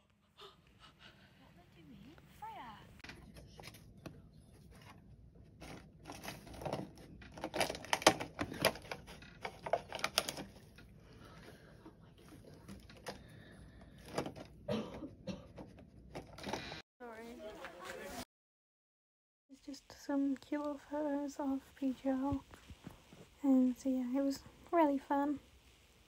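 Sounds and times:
plastic bag rustling and crinkling: 0:05.6 - 0:10.9.

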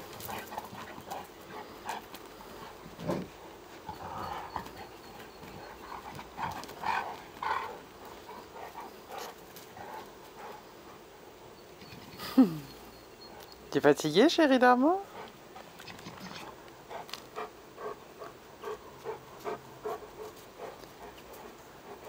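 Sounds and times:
dogs grunting and growling: 0:00.0 - 0:10.6, 0:15.0 - 0:22.0
dogs scuffling: 0:00.0 - 0:10.6.

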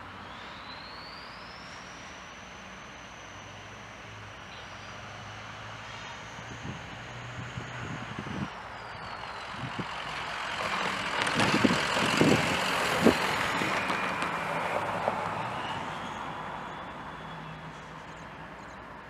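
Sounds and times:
distant locomotive engine hum: 0:00.0 - 0:19.0
rushing noise: 0:05.0 - 0:18.5.

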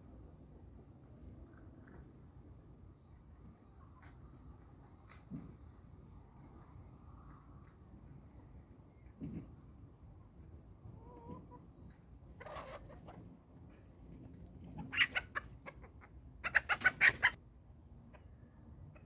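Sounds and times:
chickens clucking: 0:10.9 - 0:11.8, 0:12.4 - 0:13.3, 0:14.0 - 0:17.4.

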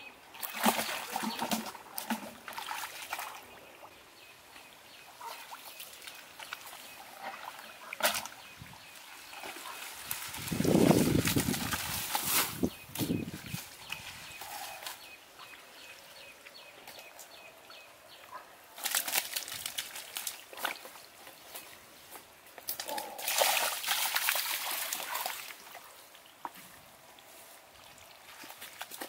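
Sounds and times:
hands splashing in muddy water: 0:22.8 - 0:25.5.

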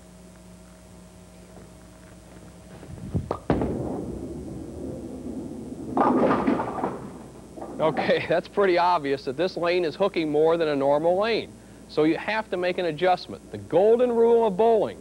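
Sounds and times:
bowling ball rolling rumble: 0:01.5 - 0:11.4
bowling ball thud on lane: 0:03.2 - 0:08.0
bowling pins crashing: 0:03.2 - 0:08.4.

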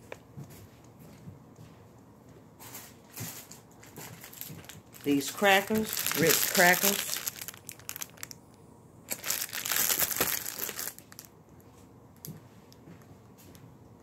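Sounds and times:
plastic overwrap crinkling: 0:03.1 - 0:11.3.

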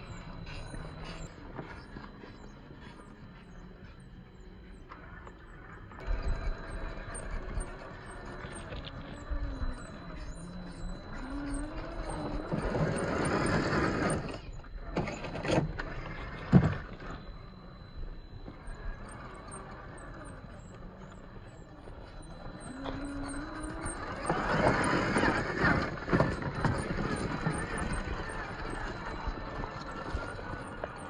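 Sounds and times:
electric motor whining: 0:00.0 - 0:31.0.

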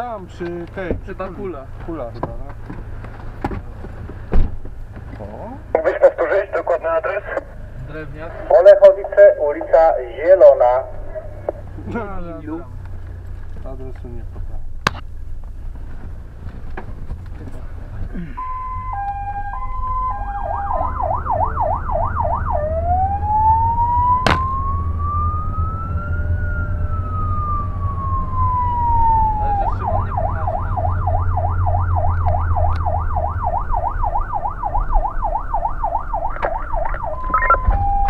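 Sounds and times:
engine rumbling: 0:00.0 - 0:38.0
fire engine siren: 0:08.5 - 0:11.7, 0:18.3 - 0:38.0
sharp knock: 0:24.2 - 0:24.5.

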